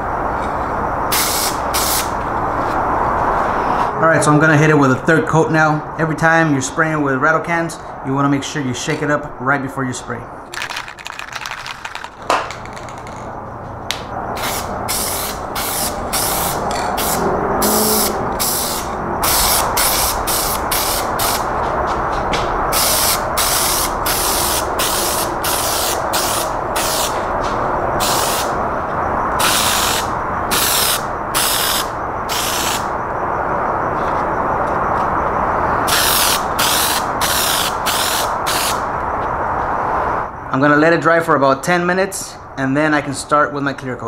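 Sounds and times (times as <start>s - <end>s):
spray can hissing: 1.1s - 2.1s, 14.4s - 21.5s, 22.7s - 27.2s, 28.0s - 28.5s, 29.4s - 32.9s, 35.9s - 38.8s.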